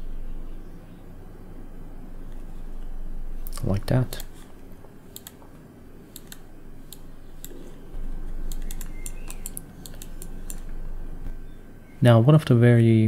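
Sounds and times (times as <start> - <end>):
low background hum: 0.0 - 13.0
keyboard and mouse clicking: 5.1 - 11.4.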